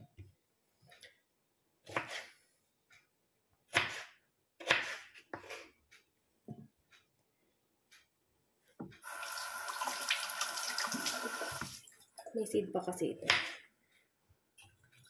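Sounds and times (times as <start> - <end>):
knife chopping on wooden board: 1.8 - 2.3, 3.7 - 5.6.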